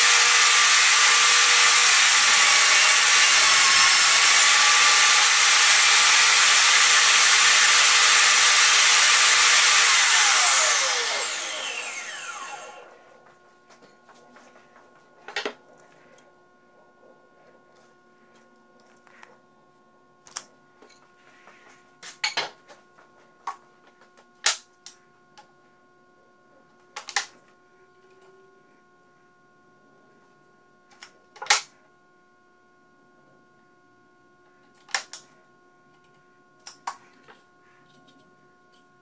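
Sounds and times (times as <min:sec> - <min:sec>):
faint steady hum: 0:10.6 - 0:39.0.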